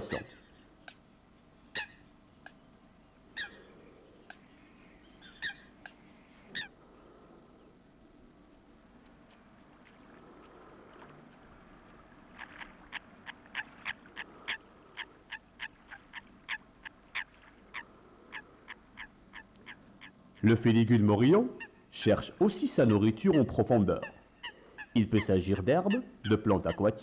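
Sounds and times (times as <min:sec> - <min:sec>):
small bird peeping: 0:01.6 - 0:06.8, 0:08.5 - 0:20.5
waterfowl honking: 0:06.5 - 0:06.7, 0:12.0 - 0:20.6.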